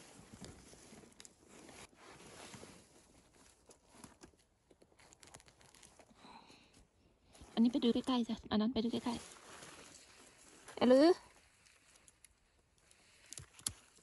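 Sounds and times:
small clicks and snaps: 0:11.6 - 0:14.0.

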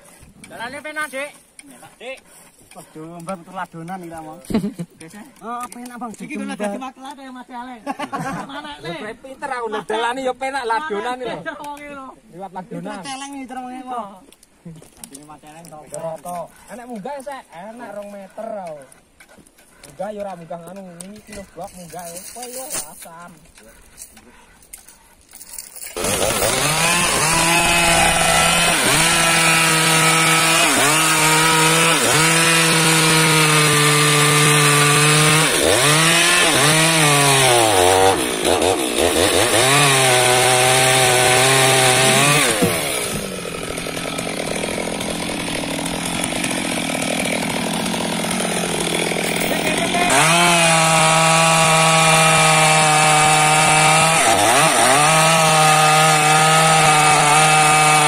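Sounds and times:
chainsaw cutting wood: 0:20.8 - 0:58.0.

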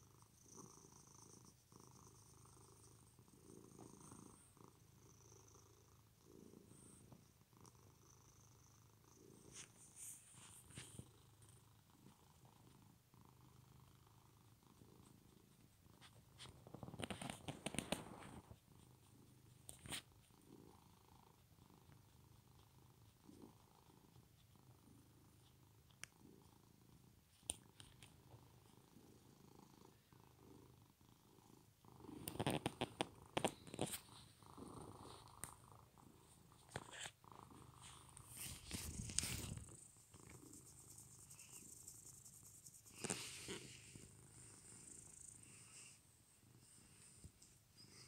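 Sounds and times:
cat purring: 0:00.0 - 0:48.0
rustling and handling noise: 0:09.4 - 0:11.2, 0:15.9 - 0:20.1, 0:32.2 - 0:44.2.

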